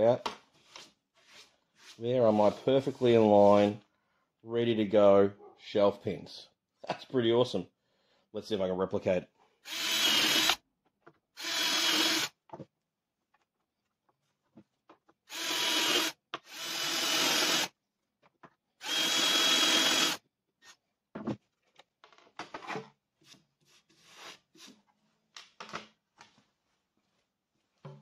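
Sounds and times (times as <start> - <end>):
cordless drill whining: 9.6 - 10.6, 11.4 - 12.3, 15.3 - 17.7, 18.8 - 20.2
knocks and scrapes of handling tools: 20.6 - 26.4, 27.7 - 28.0.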